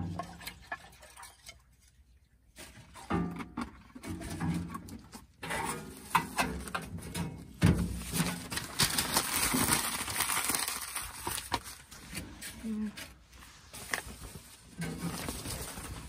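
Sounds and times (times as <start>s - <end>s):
newspaper rustling and crinkling: 7.8s - 16.0s.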